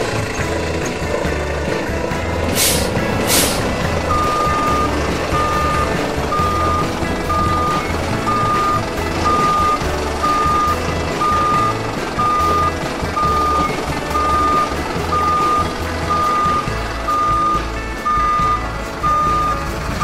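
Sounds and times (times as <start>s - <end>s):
diesel engine rumble: 0.0s - 20.0s
short air hisses: 2.5s - 3.7s
truck reversing alarm beeping: 2.5s - 20.0s.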